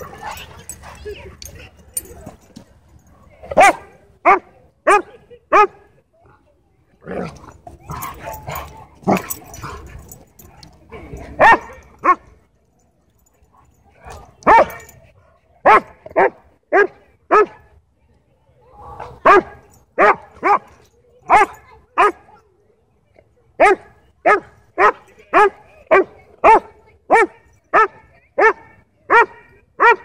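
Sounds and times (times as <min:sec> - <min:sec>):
dogs barking in rough play: 0:07.0 - 0:10.6.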